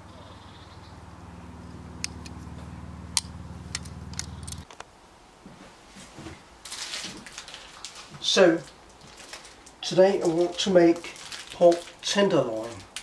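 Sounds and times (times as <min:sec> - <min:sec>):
steady low hum: 0:00.0 - 0:06.6.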